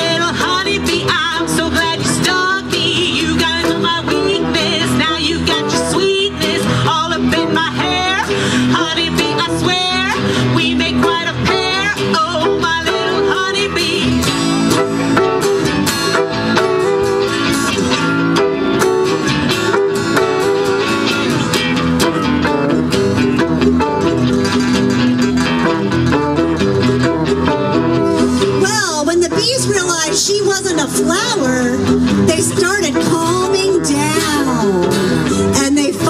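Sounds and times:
live acoustic band with guitar: 0.0s - 36.0s.

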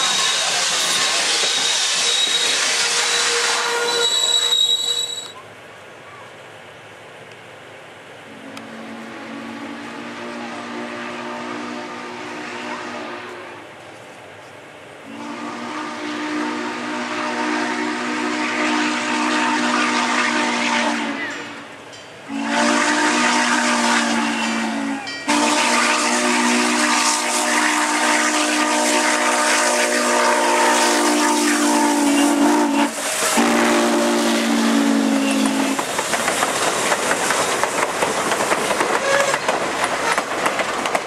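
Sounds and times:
steam chime whistle blasts: 0.0s - 5.4s, 22.3s - 35.8s
steam hissing: 0.0s - 6.6s, 13.6s - 41.0s.

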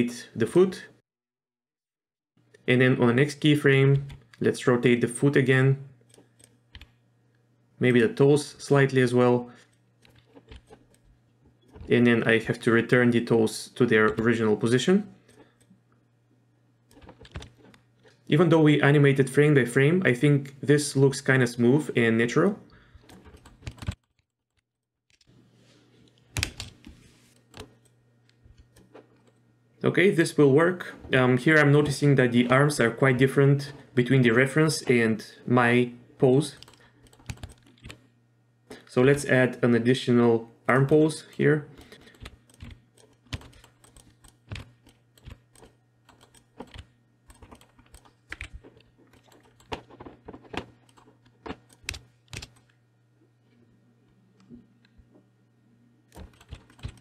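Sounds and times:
computer keyboard clicks: 36.6s - 38.0s, 41.8s - 52.6s, 56.2s - 57.0s.

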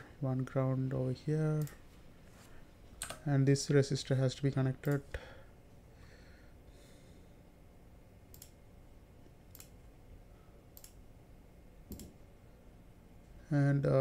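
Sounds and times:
computer mouse clicks: 8.3s - 8.6s, 9.5s - 9.8s, 10.8s - 11.0s, 11.9s - 12.2s.

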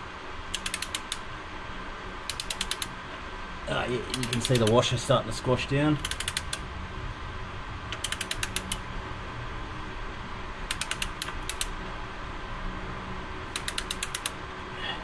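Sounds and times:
ratchet wrench clicking: 0.5s - 1.3s, 2.3s - 3.0s, 4.1s - 4.8s, 6.0s - 6.6s, 7.9s - 8.8s, 10.6s - 11.8s, 13.5s - 14.4s.

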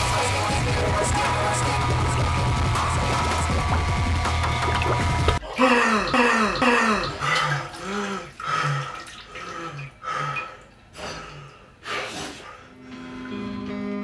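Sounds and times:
man crying out: 5.5s - 7.2s
man sobbing breaths: 5.5s - 10.4s.

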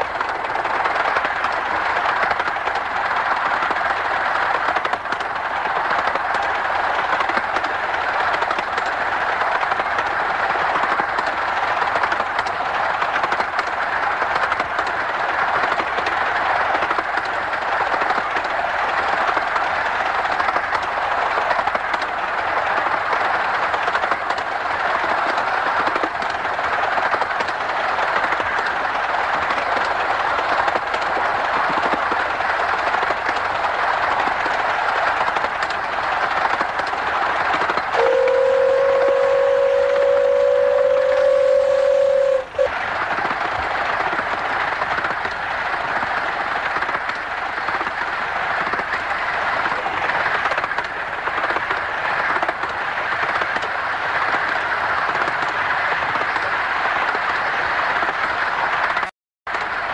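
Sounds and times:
steam locomotive running: 0.0s - 59.9s.

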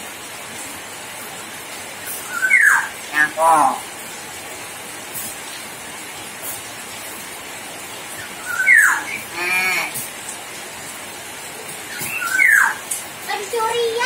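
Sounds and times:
steady hiss: 0.0s - 14.0s
myna bird calling: 2.0s - 3.9s, 8.2s - 10.1s, 11.8s - 12.9s.

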